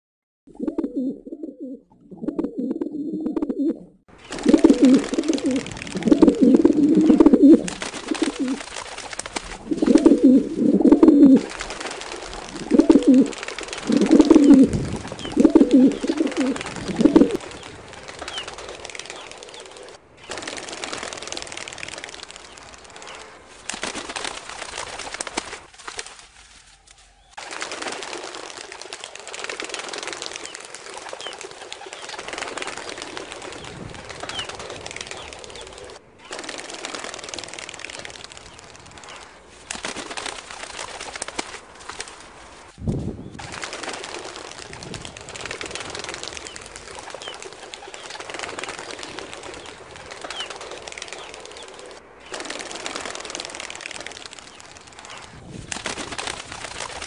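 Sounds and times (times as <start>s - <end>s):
pigeon cooing: 0.6s - 8.6s, 9.6s - 11.5s, 12.6s - 17.4s.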